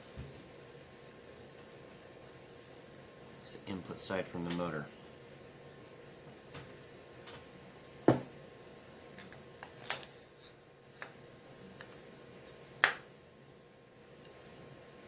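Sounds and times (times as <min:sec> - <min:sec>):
metal parts clinking: 0:09.2 - 0:10.6.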